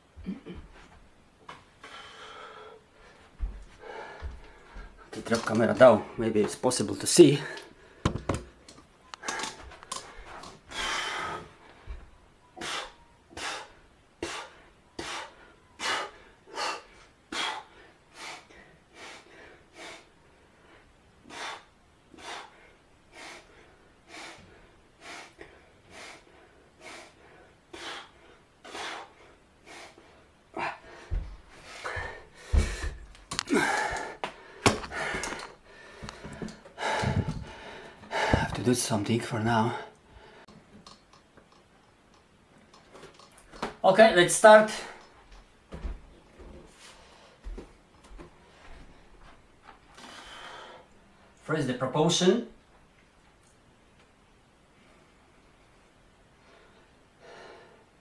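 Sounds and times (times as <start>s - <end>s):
man breathing hard: 1.8s - 5.2s, 9.2s - 38.6s, 39.6s - 40.6s, 49.9s - 51.0s, 56.4s - 58.0s.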